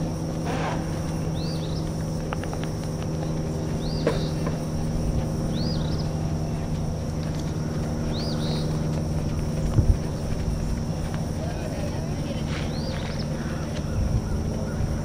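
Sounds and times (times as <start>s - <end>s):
high insect drone: 0.0s - 15.0s
low hum: 0.0s - 15.0s
bird chirping: 1.0s - 2.1s, 3.2s - 6.7s, 7.3s - 10.7s, 12.6s - 15.0s.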